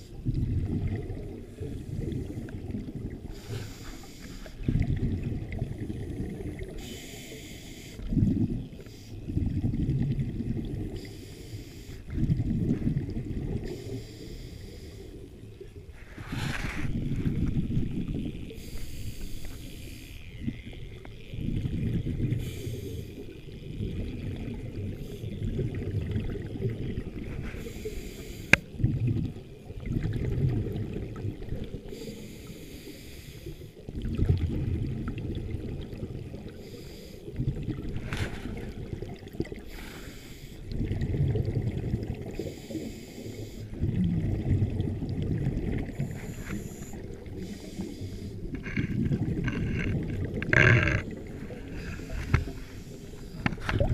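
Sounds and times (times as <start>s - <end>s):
exhaled bubbles rumbling underwater: 0.0s - 53.9s
regulator inhale hiss: 3.3s - 4.7s, 6.7s - 8.1s, 8.8s - 9.2s, 10.9s - 12.1s, 13.6s - 15.2s, 16.0s - 17.1s, 18.5s - 20.3s, 22.3s - 23.4s, 27.3s - 28.7s, 31.8s - 33.8s, 36.5s - 37.4s, 39.6s - 40.7s, 42.3s - 43.8s, 45.9s - 48.6s, 50.8s - 53.7s.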